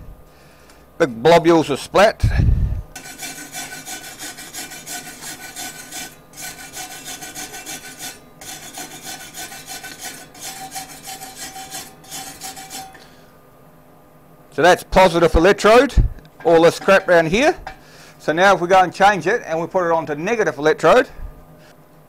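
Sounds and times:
file rasping on steel: 0:03.0 - 0:13.2.

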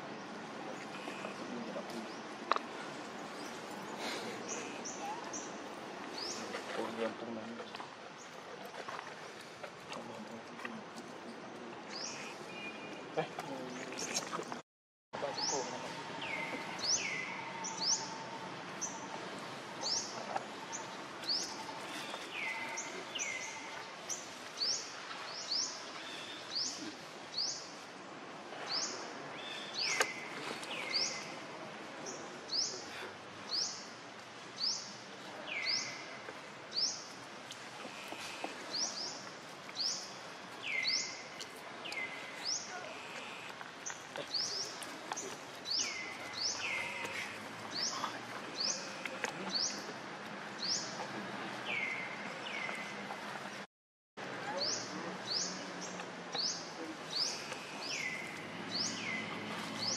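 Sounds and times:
outdoor background noise: 0:00.0 - 0:14.6, 0:15.2 - 0:59.9
bird calling: 0:45.7 - 0:49.9.

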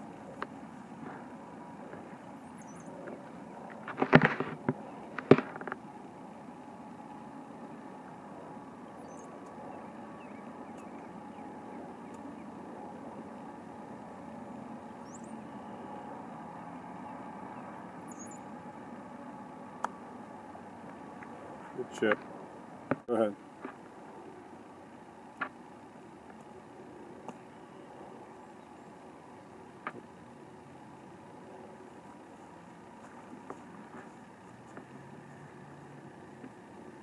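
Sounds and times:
faint bird chirps: 0:02.2 - 0:03.6, 0:08.7 - 0:12.6, 0:14.7 - 0:18.6.

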